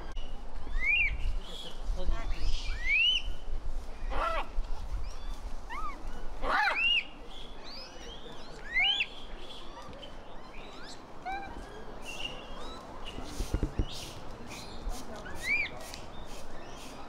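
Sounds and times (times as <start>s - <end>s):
monkeys giving coo calls: 5.6s - 7.0s, 8.4s - 17.0s.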